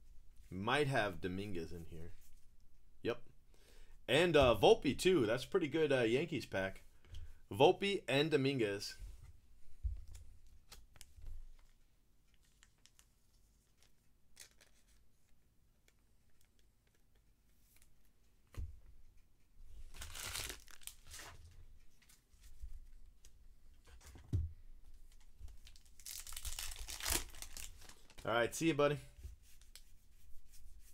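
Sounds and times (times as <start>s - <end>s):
plastic wrapper crinkling and tearing: 12.3s - 15.0s, 19.9s - 21.4s, 25.2s - 28.3s.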